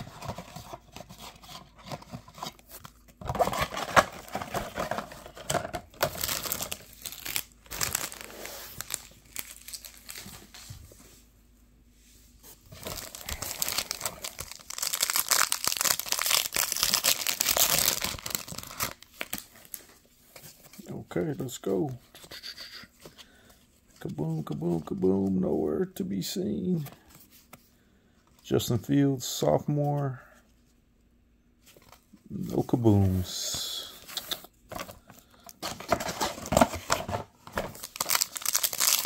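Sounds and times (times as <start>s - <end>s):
plastic wrapper crinkling and tearing: 2.7s - 10.5s, 12.7s - 19.8s, 37.6s - 39.0s.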